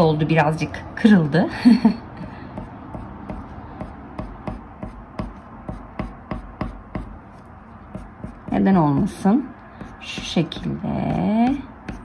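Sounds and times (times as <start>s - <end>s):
pencil scratching on paper: 2.6s - 9.2s.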